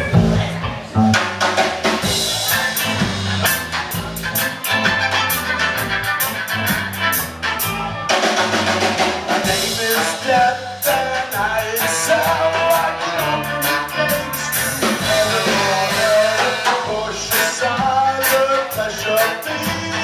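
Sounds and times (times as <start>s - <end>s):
bass guitar: 0.0s - 20.0s
drum kit: 0.0s - 20.0s
electric guitar: 0.0s - 20.0s
saxophone: 11.7s - 17.7s.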